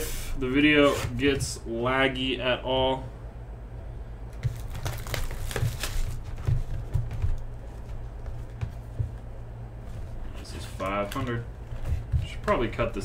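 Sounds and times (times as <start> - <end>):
low hum: 0.0 - 13.0
shrink wrap crinkling: 4.3 - 8.6
cardboard box rustling: 4.4 - 9.2.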